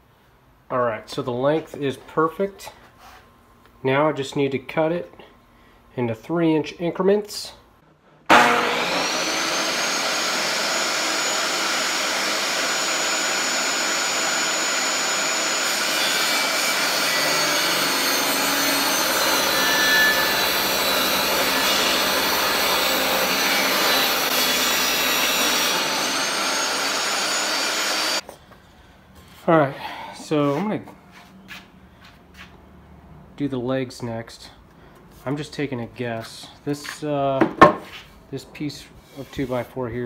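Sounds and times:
table saw motor whine: 0:08.3 - 0:28.2.

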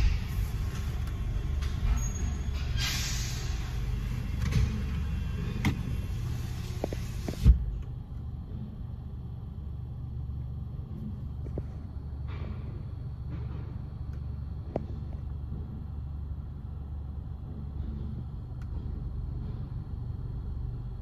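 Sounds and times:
car wash tunnel rumble: 0:00.0 - 0:21.0
hiss: 0:02.6 - 0:04.0.

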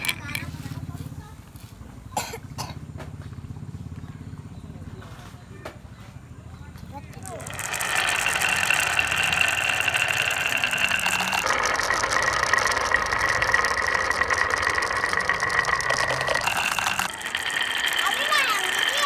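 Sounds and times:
marbles clicking together: 0:00.0 - 0:00.6, 0:07.1 - 0:19.0
marbles rolling on wooden track: 0:00.0 - 0:01.0, 0:07.0 - 0:19.0.

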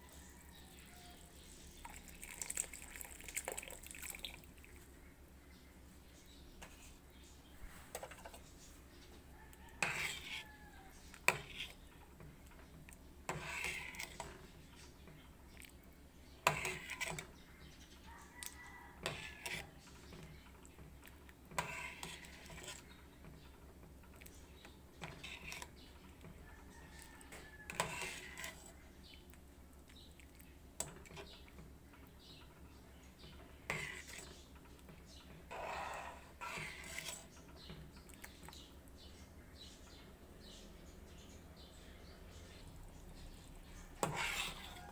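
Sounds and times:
ladle scraping metal pot: 0:09.8 - 0:10.6, 0:11.2 - 0:11.9, 0:13.3 - 0:14.6, 0:16.4 - 0:17.4, 0:18.6 - 0:20.3, 0:21.5 - 0:23.0, 0:24.6 - 0:25.8, 0:27.6 - 0:28.8, 0:33.4 - 0:34.5, 0:35.4 - 0:37.4, 0:43.8 - 0:44.9.

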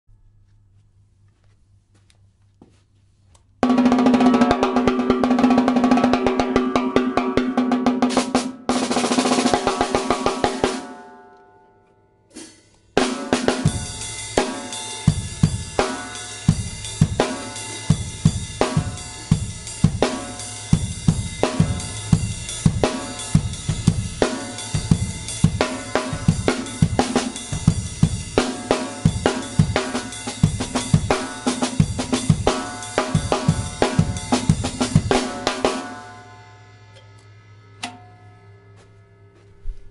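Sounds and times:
drum kit playing a groove: 0:03.6 - 0:11.0, 0:12.3 - 0:37.2
high-tuned snare drum: 0:03.6 - 0:11.0, 0:12.3 - 0:36.4
cymbals ringing: 0:13.6 - 0:31.6, 0:32.2 - 0:39.6.

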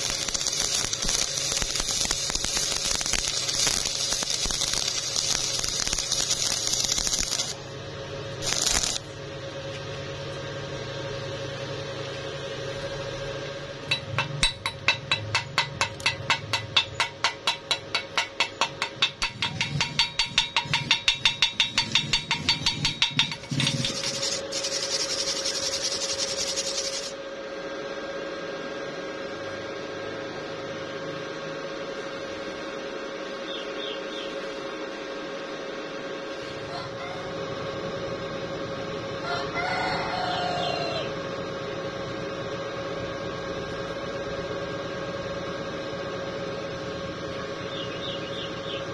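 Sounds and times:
welding arc crackling and hissing: 0:00.0 - 0:09.5, 0:13.8 - 0:27.2
steady hum: 0:00.0 - 0:48.9.

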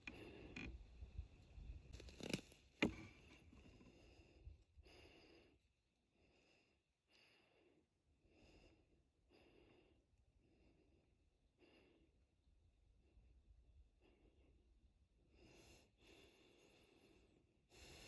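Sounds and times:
faint breathing: 0:03.3 - 0:12.2, 0:15.3 - 0:18.0.

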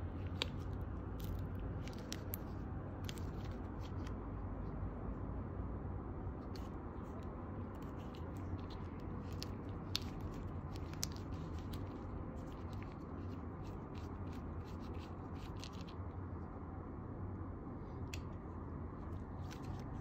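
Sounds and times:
steady low hum: 0:00.0 - 0:20.0
plastic clicks and scrapes: 0:07.8 - 0:15.9.

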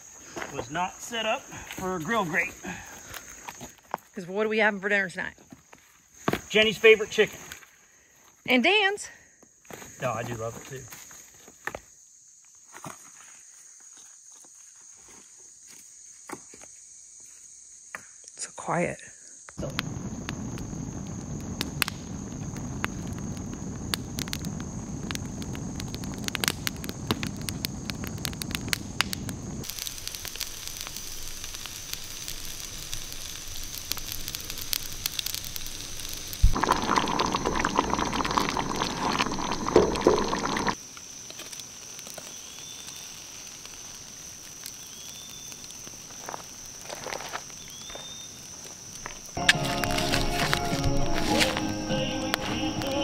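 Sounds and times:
high insect trill: 0:00.0 - 0:53.0
indistinct noise: 0:19.6 - 0:40.8
campfire crackling and popping: 0:19.6 - 0:53.0.

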